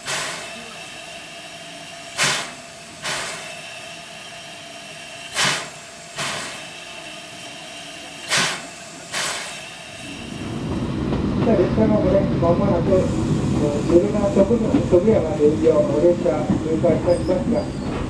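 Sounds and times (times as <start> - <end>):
steam hissing: 0.0 - 10.9
sharp exhaust puffs: 2.1 - 3.7, 5.2 - 6.9, 8.2 - 10.1.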